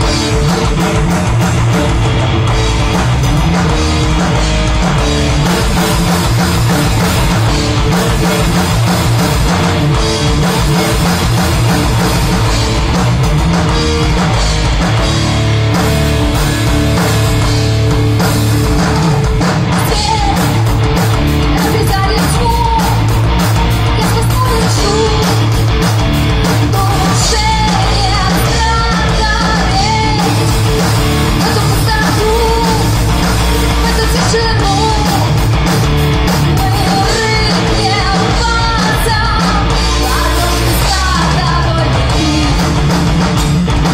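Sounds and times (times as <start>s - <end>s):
drum kit: 0.0s - 43.9s
electric guitars: 0.0s - 43.9s
woman singing lead: 19.6s - 23.2s, 23.8s - 25.6s, 26.4s - 35.6s, 36.3s - 43.0s.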